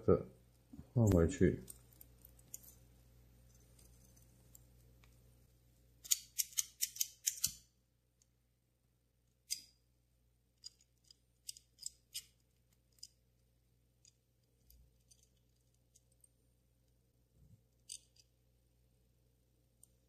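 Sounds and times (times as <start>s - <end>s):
small metal clicks: 6.0s - 7.6s, 10.6s - 13.2s, 14.0s - 16.3s, 17.8s - 18.3s.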